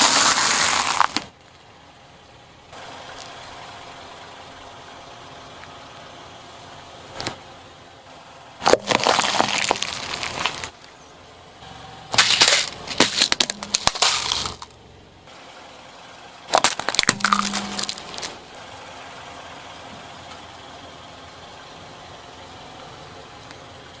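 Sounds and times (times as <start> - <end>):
tyre crushing objects crunching: 0.0 - 1.3, 8.6 - 10.8, 12.2 - 14.7, 16.5 - 18.4.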